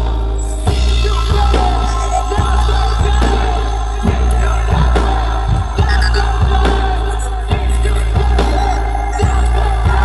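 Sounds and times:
drum hits: 4.0 - 7.0.

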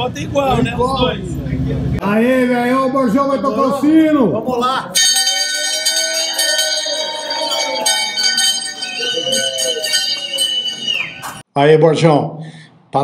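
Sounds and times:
people shouting and cheering: 2.2 - 11.4
hand bell ringing: 5.0 - 11.4.

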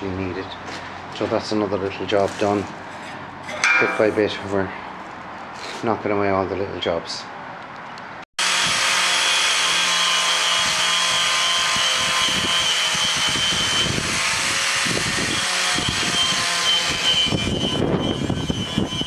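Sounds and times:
angle grinder sanding steel: 8.4 - 19.0
wind buffeting microphone: 11.6 - 19.0.

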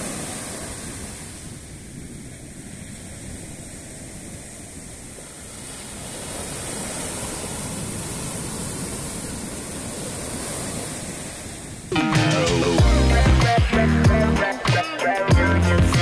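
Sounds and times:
surf breaking on beach: 0.0 - 12.8.

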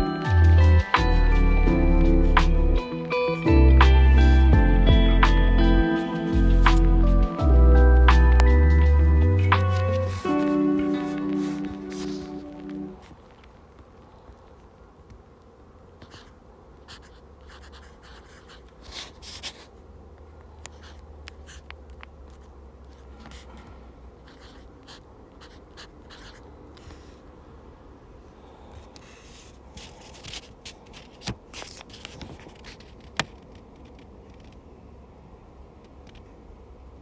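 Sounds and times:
pen nib scratching on paper: 16.0 - 19.8, 20.7 - 21.7, 24.2 - 27.1.

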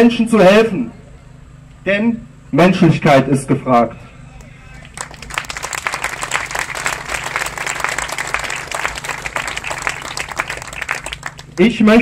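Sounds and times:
crowd applauding: 4.4 - 12.0.

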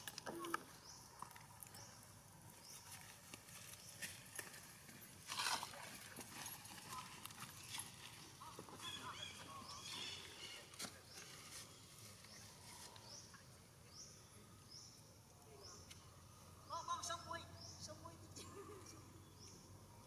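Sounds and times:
clicks and rustles of grass: 0.0 - 13.3.

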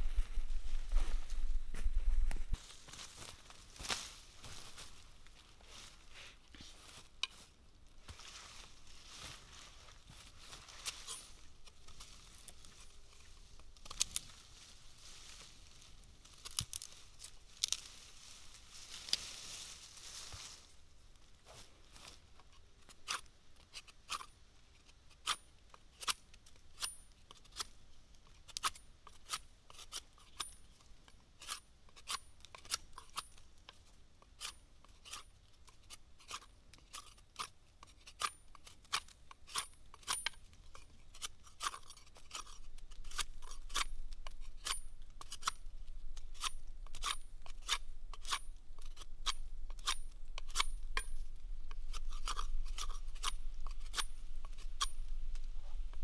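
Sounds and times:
low rumble: 0.0 - 2.6
knife scraping bark off stick: 10.8 - 14.3, 22.9 - 24.3, 25.1 - 26.2, 26.8 - 30.6, 31.4 - 33.4, 34.3 - 56.0.

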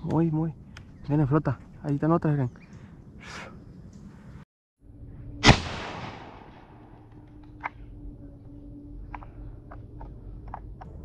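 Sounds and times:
shotgun blast: 5.4 - 6.8.

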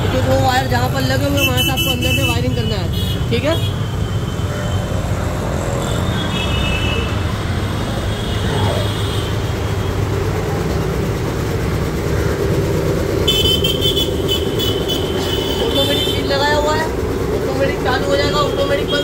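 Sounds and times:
air compressor running: 7.2 - 19.0.

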